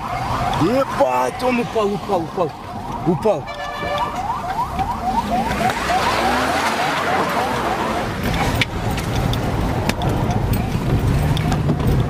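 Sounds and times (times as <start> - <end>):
electronic siren chirping: 0.0 - 9.0
vehicle and road noise: 0.0 - 12.0.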